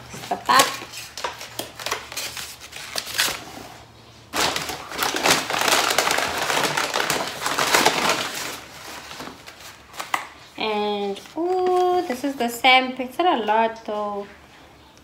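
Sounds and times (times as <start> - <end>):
plastic packaging crinkling: 0.0 - 3.6, 4.3 - 12.5
dense plastic crackling: 4.3 - 10.3.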